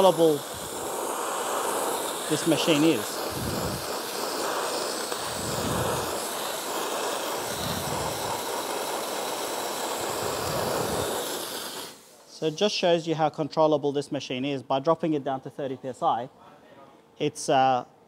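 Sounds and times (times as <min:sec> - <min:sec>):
dry ice blaster hissing: 0:00.0 - 0:12.9.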